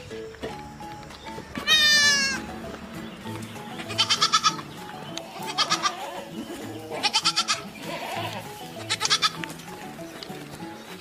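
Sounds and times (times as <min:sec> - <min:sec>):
soft background music: 0:00.0 - 0:11.0
goat bleating: 0:01.5 - 0:02.6, 0:03.8 - 0:09.9.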